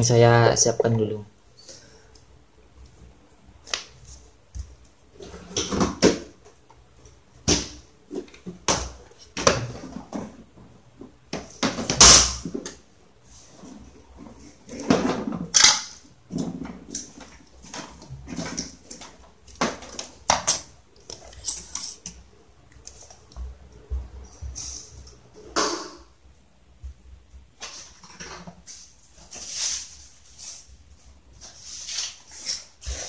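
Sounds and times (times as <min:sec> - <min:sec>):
objects knocking and clattering: 0:14.1 - 0:22.2.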